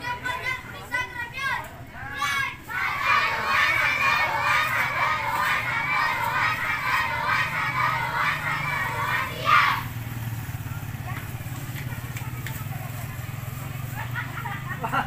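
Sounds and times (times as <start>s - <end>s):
children shouting together: 0.0s - 10.0s.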